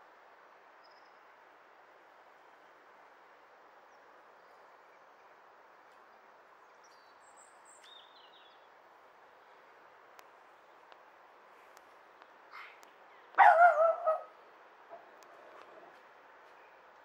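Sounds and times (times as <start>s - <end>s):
outdoor background hiss: 0.0s - 17.0s
faint bird chirps: 0.8s - 1.3s.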